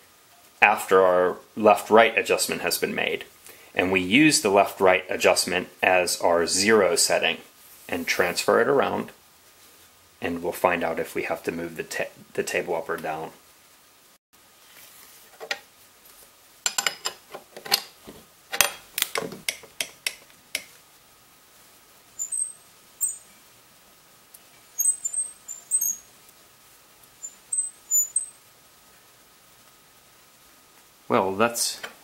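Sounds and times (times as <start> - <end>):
sharp clicks and knocks: 16.7 - 20.8.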